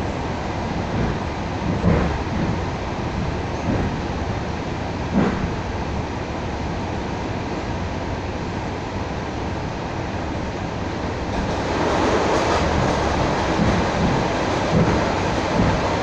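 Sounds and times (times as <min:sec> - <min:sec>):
passing train: 0:00.0 - 0:16.0
electric train running: 0:11.1 - 0:16.0.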